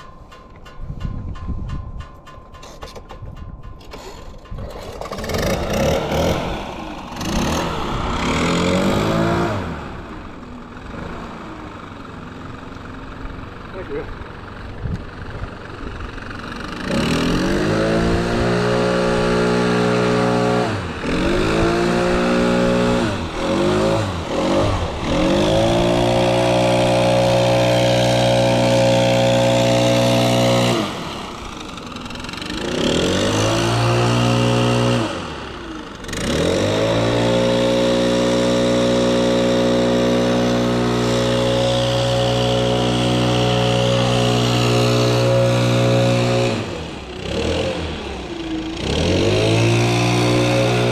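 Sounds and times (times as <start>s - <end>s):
leaf blower engine revving: 3.9s - 50.9s.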